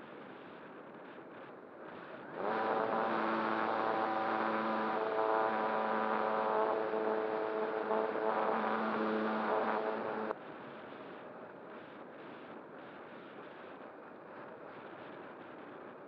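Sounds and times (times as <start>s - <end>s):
faint airflow hiss: 0.0s - 16.0s
electric motor and propeller whine: 2.1s - 10.4s.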